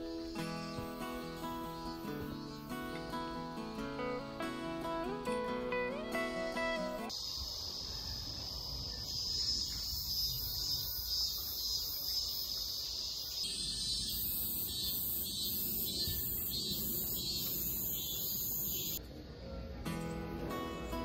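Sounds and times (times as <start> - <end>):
insects buzzing: 0.0 - 5.2, 6.1 - 19.0
insect pulsing call: 7.1 - 19.0.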